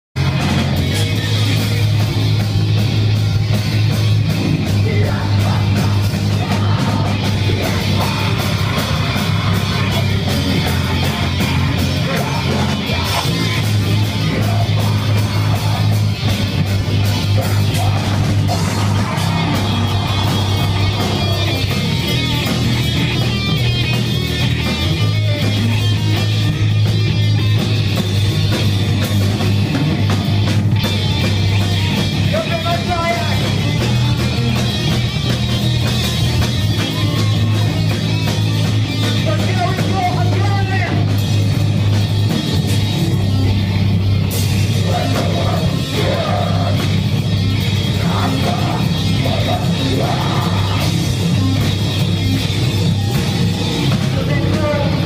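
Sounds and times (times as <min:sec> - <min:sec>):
distorted guitars and bass: 0:00.0 - 0:55.0
fast drumming: 0:00.2 - 0:55.0
harsh shouted vocals: 0:04.2 - 0:23.6, 0:31.8 - 0:34.6, 0:39.0 - 0:41.2, 0:44.4 - 0:55.0.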